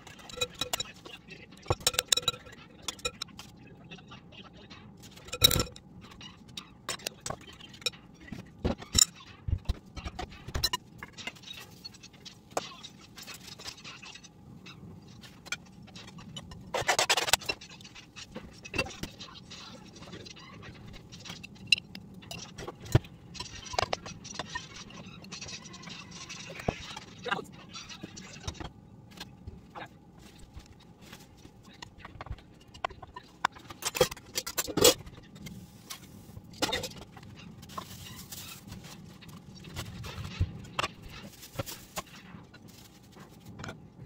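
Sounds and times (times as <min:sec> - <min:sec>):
spoon scraping glass bowl: 0:00.0 - 0:01.0, 0:01.7 - 0:03.2, 0:05.2 - 0:05.8
paper rustle: 0:37.6 - 0:43.6.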